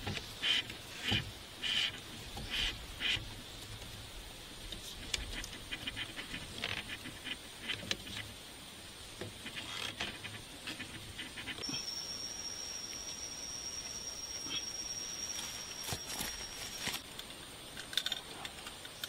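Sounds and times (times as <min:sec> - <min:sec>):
high insect drone: 0:00.1 - 0:19.0
rubber strip squeaking and scratching: 0:00.4 - 0:03.2, 0:04.9 - 0:08.3, 0:09.4 - 0:11.7
lower insect tone: 0:08.0 - 0:19.0.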